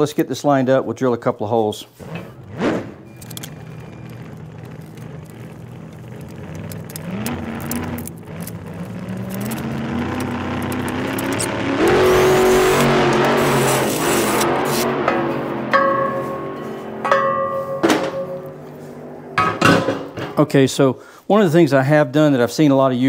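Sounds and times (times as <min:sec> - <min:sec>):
drill boring through metal: 0:07.0 - 0:14.9.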